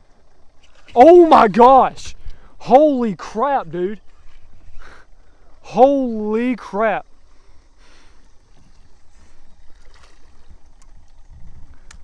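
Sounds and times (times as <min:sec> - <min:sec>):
faint water sounds: 0:00.0 - 0:12.0
wind rumble on microphone: 0:08.6 - 0:12.0
light clicks: 0:11.8 - 0:12.0.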